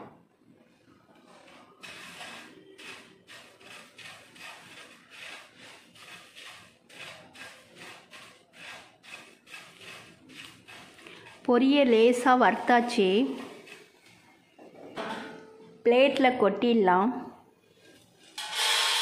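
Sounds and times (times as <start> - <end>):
spatula scraping rice in pan: 1.2 - 12.1, 12.7 - 14.2.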